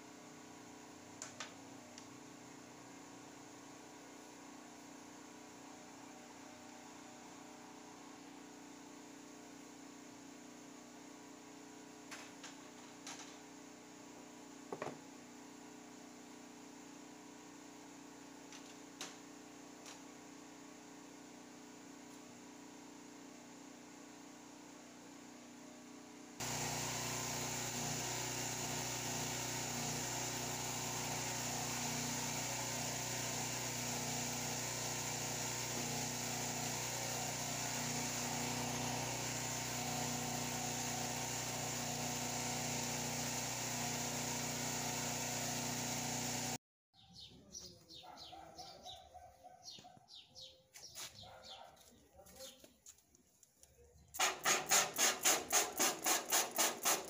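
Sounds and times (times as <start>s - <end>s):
birds chirping: 47.0s - 52.9s
spray bottle squirting water: 54.2s - 57.0s.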